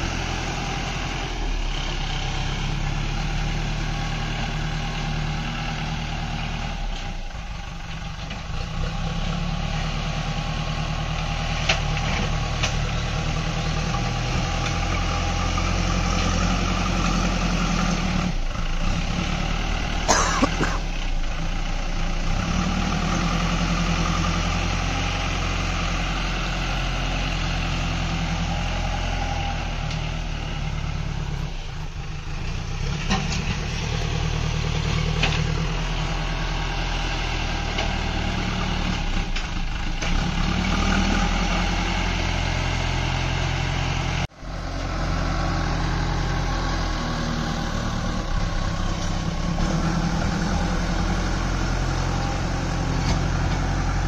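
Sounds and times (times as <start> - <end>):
diesel engine running: 0.0 - 54.0
loader bucket scooping soil: 45.2 - 54.0.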